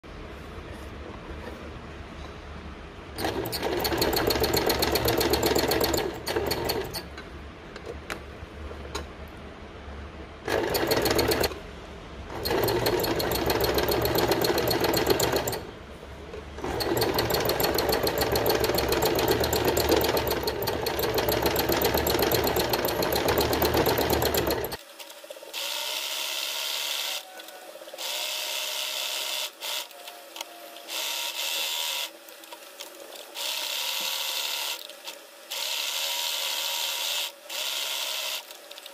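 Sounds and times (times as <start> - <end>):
sewing machine stitching: 3.2 - 7.1, 10.4 - 11.6, 12.3 - 15.7, 16.6 - 24.8.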